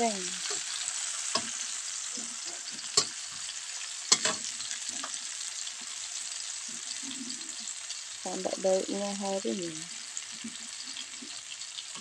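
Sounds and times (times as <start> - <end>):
vegetables sizzling in hot oil: 0.0 - 12.0
metal spatula scraping a wok: 0.4 - 5.4
spatula clacking on wok: 2.8 - 3.2, 4.1 - 5.2.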